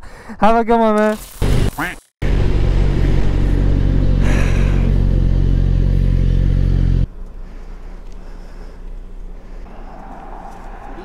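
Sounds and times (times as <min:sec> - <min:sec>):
motorcycle engine running: 0:02.2 - 0:09.3.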